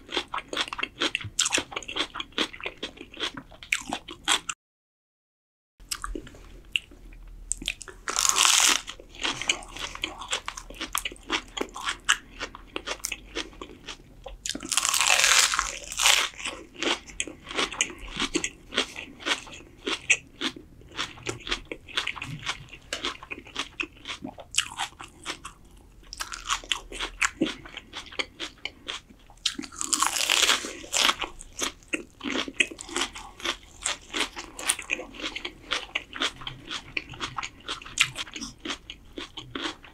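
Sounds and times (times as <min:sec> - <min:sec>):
wet chewing: 0:05.9 - 0:39.9
crunching bites of lettuce: 0:07.5 - 0:13.7, 0:14.4 - 0:39.9.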